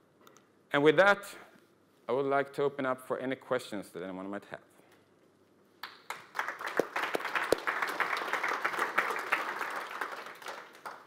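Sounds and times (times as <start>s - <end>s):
audience applauding: 5.8s - 11.0s.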